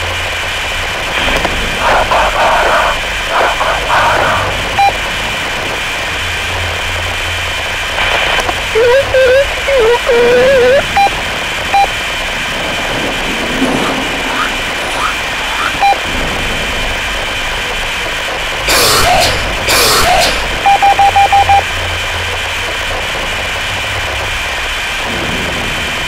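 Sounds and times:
faint steady tones: 0:00.0 - 0:23.4
loud static bursts: 0:00.0 - 0:26.0
short beeps: 0:08.8 - 0:11.1, 0:11.7 - 0:11.9, 0:13.8 - 0:16.0, 0:20.6 - 0:21.6.

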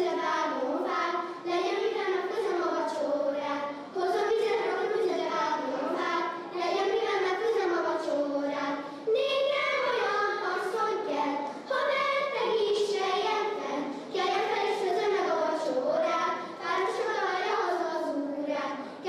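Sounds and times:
girl singing unaccompanied: 0:00.0 - 0:19.0
singer breathing: 0:08.8 - 0:09.1.

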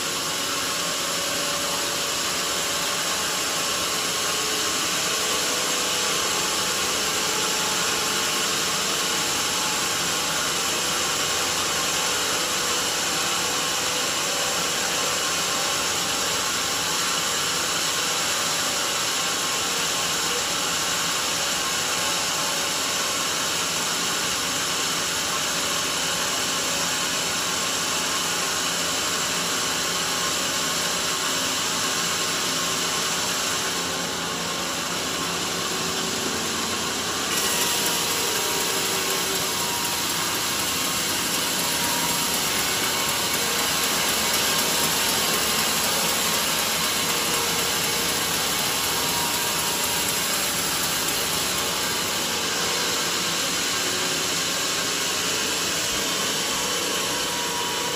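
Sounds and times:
band saw sawing log: 0:31.3 - 0:57.9.

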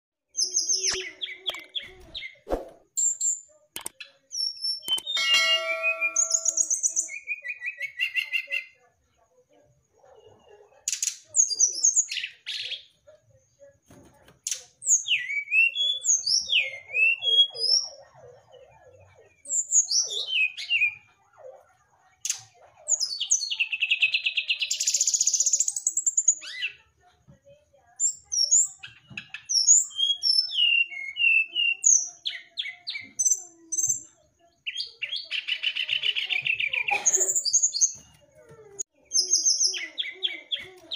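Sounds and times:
bird singing whistles and trills: 0:14.9 - 0:17.9.

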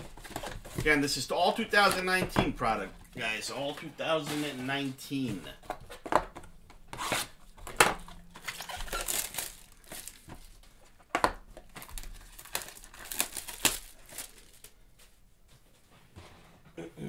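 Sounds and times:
plastic shrink-wrap crinkling and tearing: 0:07.0 - 0:10.9, 0:11.5 - 0:14.8.

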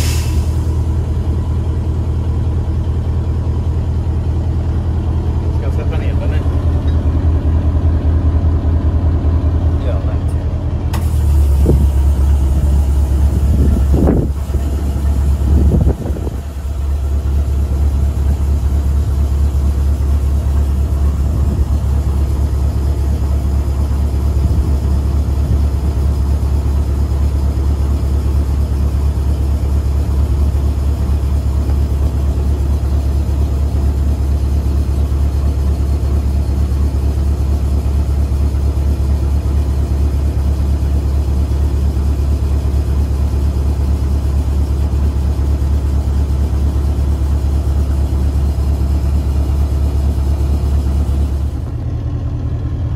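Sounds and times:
diesel engine idling: 0:00.0 - 0:52.9.

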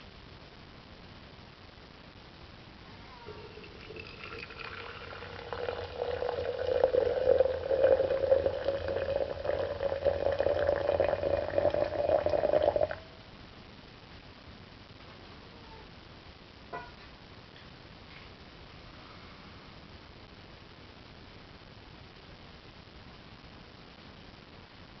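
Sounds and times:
water pouring into a glass: 0:03.3 - 0:13.0.

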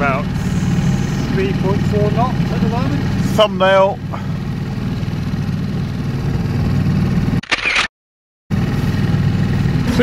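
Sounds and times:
boat motor throbbing: 0:00.0 - 0:07.4.

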